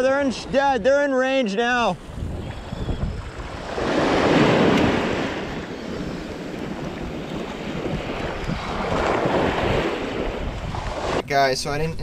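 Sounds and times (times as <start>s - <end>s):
wind rumbling on microphone: 1.8s - 12.0s
small waves washing over sand: 2.0s - 11.3s.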